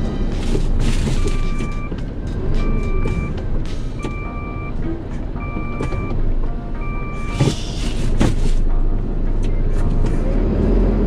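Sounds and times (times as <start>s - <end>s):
truck engine running: 0.0s - 11.0s
truck reversing alarm beeping: 0.4s - 8.9s.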